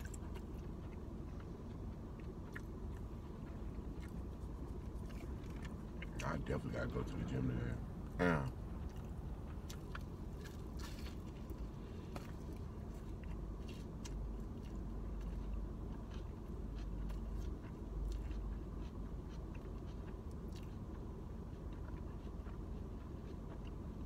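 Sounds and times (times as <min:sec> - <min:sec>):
low rumble: 0:00.0 - 0:15.9
person chewing sandwich: 0:00.0 - 0:24.0.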